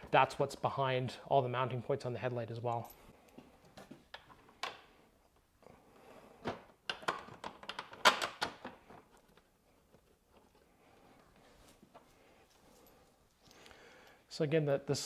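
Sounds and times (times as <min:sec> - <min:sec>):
hands handling metal parts: 0:06.4 - 0:13.6.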